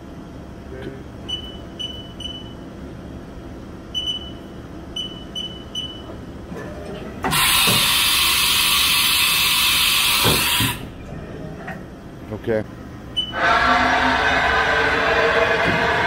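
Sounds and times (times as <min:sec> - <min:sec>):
short electronic beeps: 0:01.3 - 0:02.6, 0:03.9 - 0:06.1
loud air hiss: 0:07.3 - 0:10.8
machine hum: 0:10.8 - 0:16.0.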